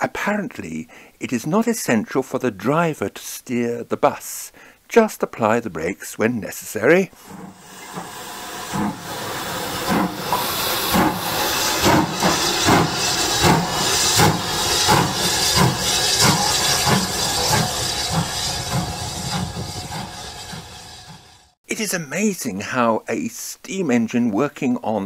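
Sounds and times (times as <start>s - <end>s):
steam hissing: 7.2s - 21.6s
steam locomotive exhaust chuffs: 7.2s - 21.6s.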